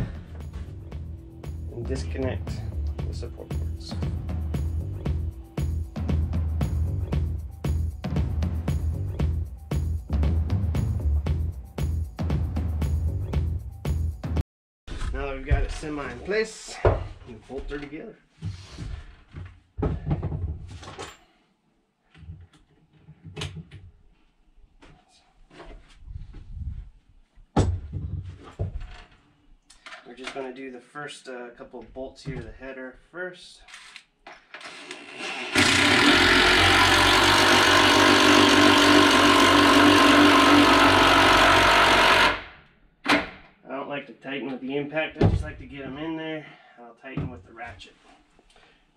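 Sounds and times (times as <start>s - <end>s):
knocks and clunks on ladder frame: 18.9s - 21.1s, 27.5s - 29.1s.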